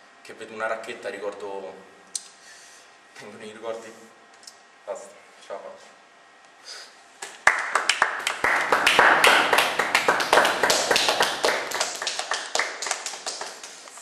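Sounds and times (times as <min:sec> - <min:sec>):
small group clapping: 0:07.2 - 0:14.0.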